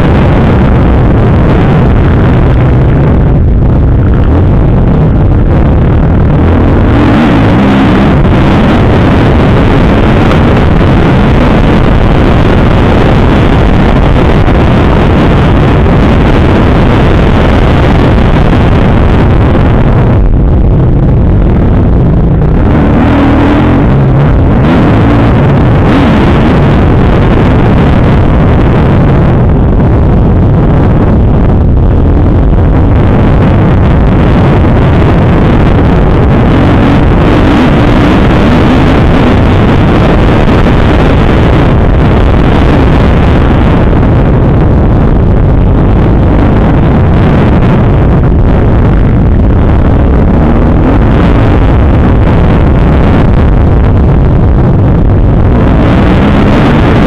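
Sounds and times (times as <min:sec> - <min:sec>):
wind buffeting microphone: 0:00.0 - 0:57.0
motocross bike engine revving: 0:06.3 - 0:11.8, 0:22.4 - 0:28.1.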